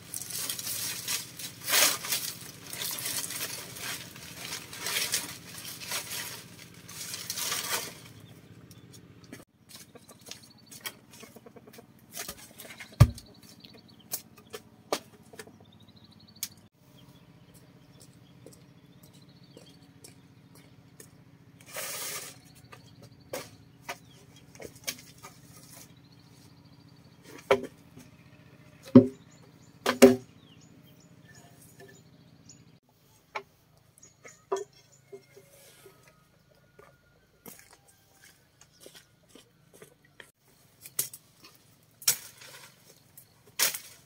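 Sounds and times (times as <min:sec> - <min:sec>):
bird chirping: 0:09.7 - 0:27.4, 0:28.0 - 0:32.8, 0:33.8 - 0:35.5
knocks and taps of manual work: 0:29.9 - 0:30.2, 0:34.3 - 0:35.5.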